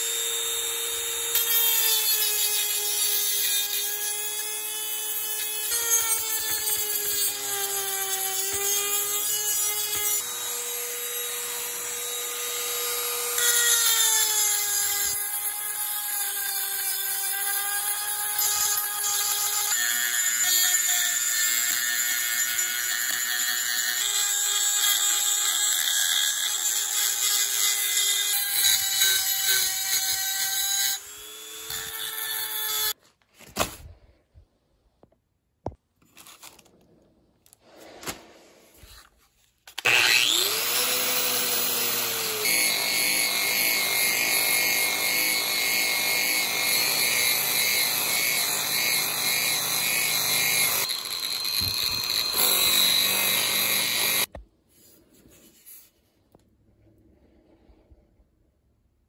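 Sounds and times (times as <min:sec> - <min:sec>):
rotary tool grinding on metal: 0:00.0 - 0:33.0, 0:39.8 - 0:54.3.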